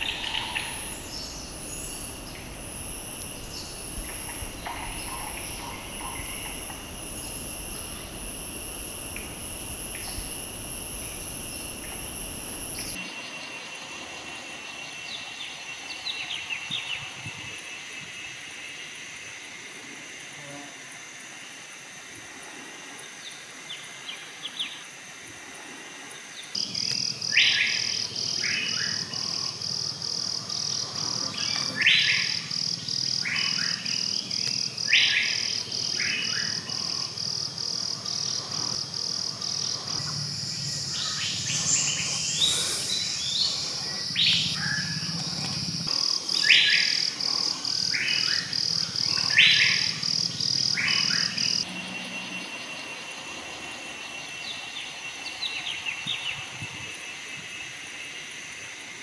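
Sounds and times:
bird calls: 0.0 - 13.0
high-pitched rapid pulsing: 0.0 - 13.0
forest background ambience: 0.0 - 59.0.

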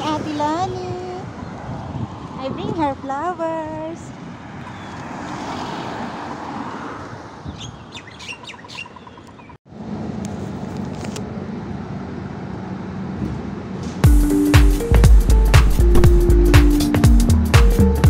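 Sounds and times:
road noise: 0.0 - 18.0
traffic noise: 0.0 - 18.0
bird chirps: 7.5 - 9.6
bus engine humming: 11.2 - 18.0
loud music: 14.0 - 18.0.

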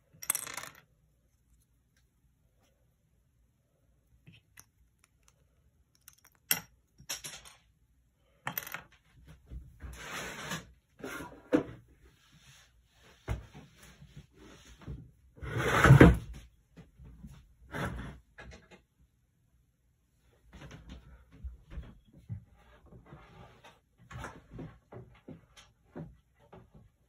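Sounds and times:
pieces knocking on wooden table: 0.2 - 0.8.

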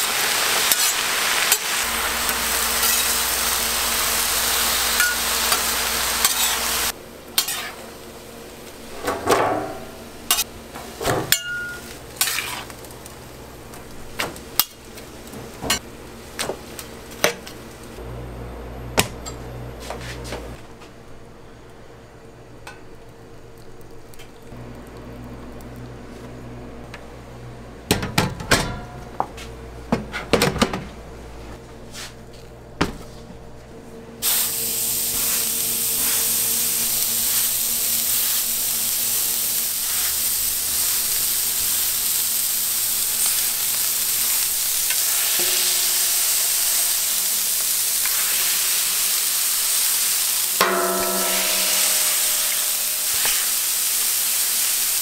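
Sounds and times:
meat sizzling on a griddle: 0.0 - 8.9, 34.2 - 55.0
metallic scrape on griddle: 0.7 - 1.7, 2.8 - 3.2, 4.9 - 6.8, 7.4 - 7.8, 11.5 - 12.8, 34.2 - 38.5, 39.6 - 41.2, 44.2 - 49.3, 50.6 - 54.0
metal kitchenware clattering: 9.0 - 12.7.

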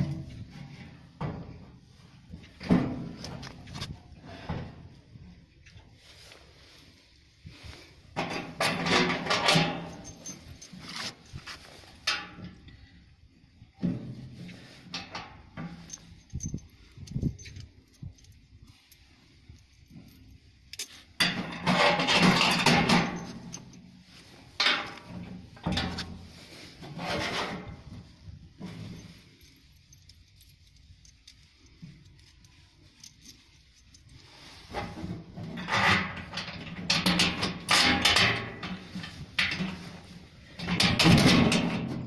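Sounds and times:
bolts rattling on sheet metal: 40.6 - 42.0.

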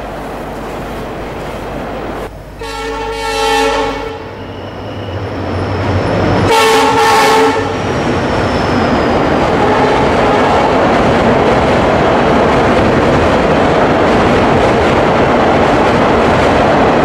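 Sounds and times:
train rumbling past: 0.0 - 17.0
locomotive horn blasts: 2.6 - 5.2, 6.4 - 7.8, 9.6 - 10.5.

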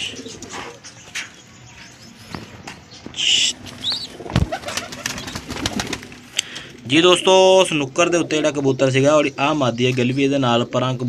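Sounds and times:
pigeons cooing: 0.0 - 9.3
pigeon wing flaps: 3.6 - 6.6.

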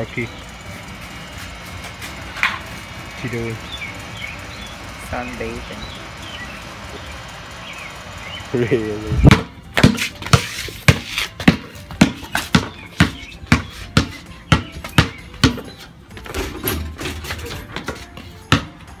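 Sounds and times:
basketball bouncing on asphalt: 9.2 - 16.2, 17.6 - 19.0.

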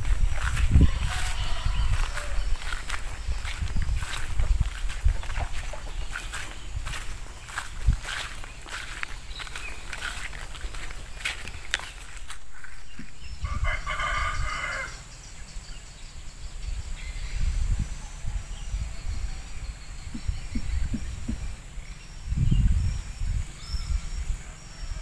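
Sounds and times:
rooster crowing: 0.4 - 3.0, 13.4 - 15.0
low rumbling thumps: 20.0 - 23.4.

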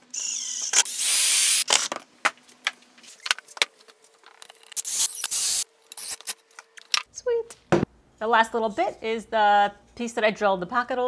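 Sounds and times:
cordless drill motor whining: 0.1 - 1.8
drill bit biting wood: 0.2 - 1.7.

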